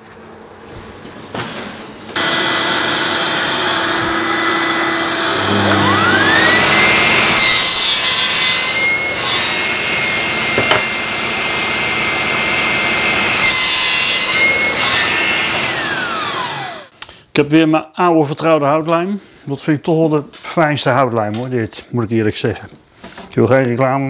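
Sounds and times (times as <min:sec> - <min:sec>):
saw crosscutting board: 0:02.2 - 0:16.9
table saw motor whine: 0:02.2 - 0:16.9.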